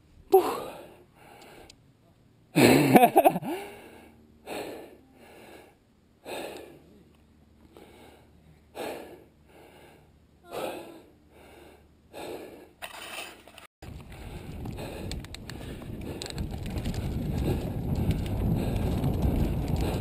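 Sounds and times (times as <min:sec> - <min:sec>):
person breathing hard: 0:03.4 - 0:06.9, 0:07.7 - 0:12.8, 0:14.0 - 0:20.0.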